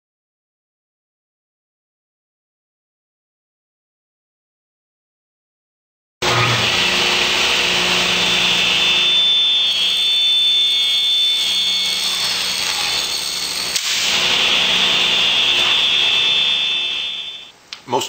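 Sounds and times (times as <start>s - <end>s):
table saw whining: 6.2s - 17.5s.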